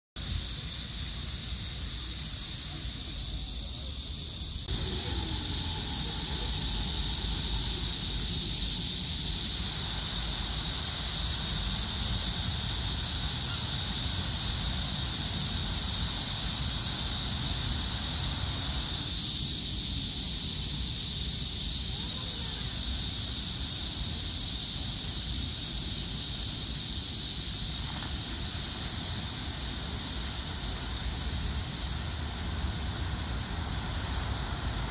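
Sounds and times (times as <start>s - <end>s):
high steady whine: 4.7s - 12.7s.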